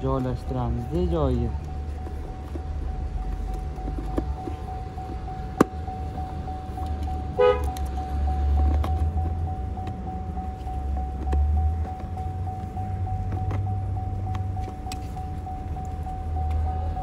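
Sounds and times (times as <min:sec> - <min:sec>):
car engine idling: 0:00.0 - 0:17.0
car horn toot: 0:07.3 - 0:08.0.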